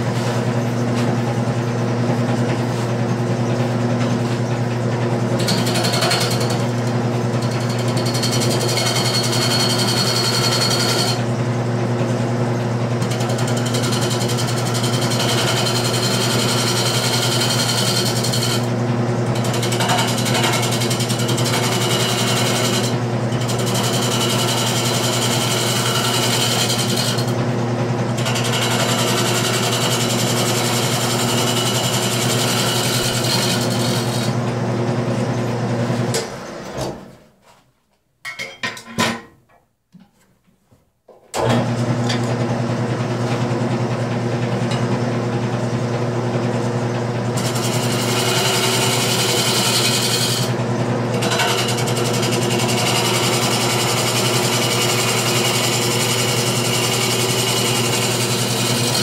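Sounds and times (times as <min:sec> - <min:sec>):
turning tool cutting wood: 0:05.2 - 0:11.4, 0:12.9 - 0:36.3, 0:47.1 - 0:59.0
wood lathe motor hum: 0:05.3 - 0:11.6, 0:12.8 - 0:36.7, 0:41.4 - 0:59.0.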